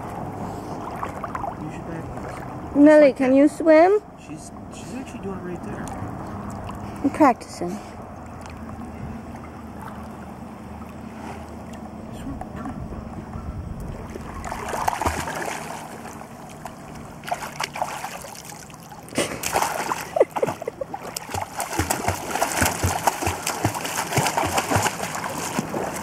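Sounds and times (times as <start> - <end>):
paws slapping water surface: 0.0 - 2.6, 13.8 - 26.0
dog splashing in shallow water: 14.0 - 26.0.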